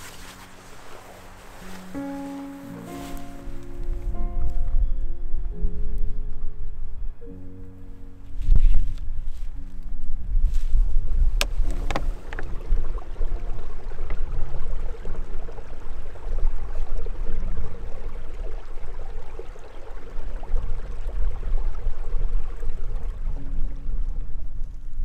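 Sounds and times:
stream running over rocks: 0:00.0 - 0:03.1, 0:11.4 - 0:24.7.

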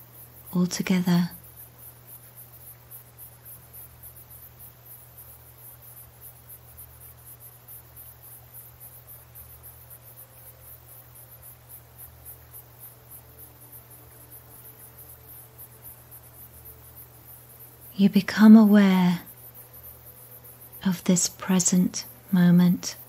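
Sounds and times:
crickets chirping: 0:00.0 - 0:23.0
low steady hum: 0:00.0 - 0:23.0.

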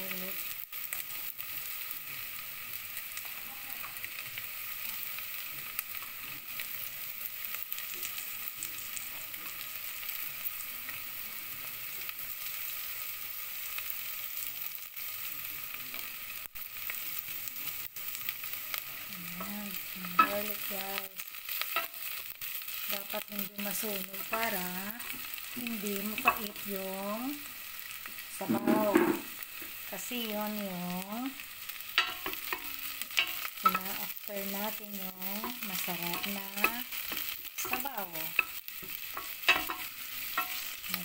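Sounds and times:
onion and garlic sizzling: 0:00.0 - 0:41.0
wooden spoon stirring: 0:32.0 - 0:41.0.

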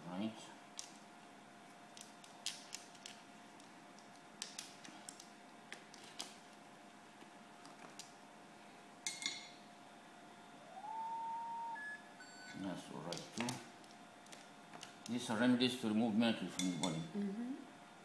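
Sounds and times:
faint steady tone: 0:09.4 - 0:12.7.

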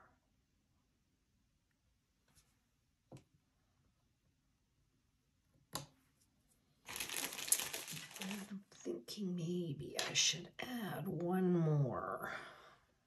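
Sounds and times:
plastic bag rustling: 0:06.8 - 0:08.7.

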